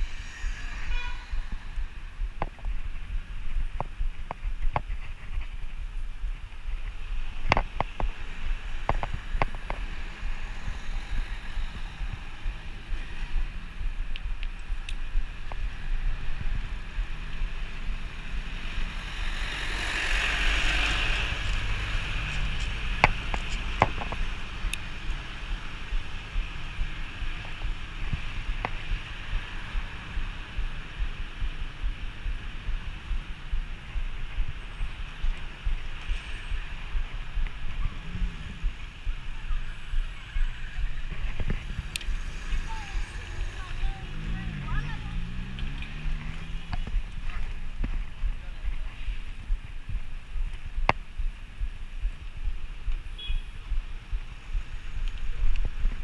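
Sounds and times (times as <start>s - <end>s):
bicycle tyres on asphalt: 0.0s - 56.0s
wind rumble on microphone: 0.0s - 56.0s
minibus passing: 15.8s - 47.8s.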